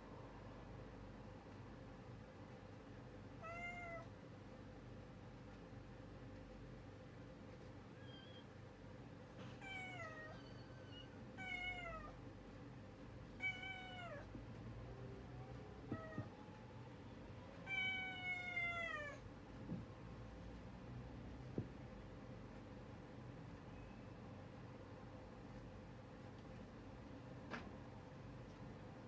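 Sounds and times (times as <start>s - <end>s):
cat meowing: 3.4s - 4.1s, 9.6s - 12.2s, 13.4s - 14.3s, 15.7s - 16.4s, 17.6s - 19.2s.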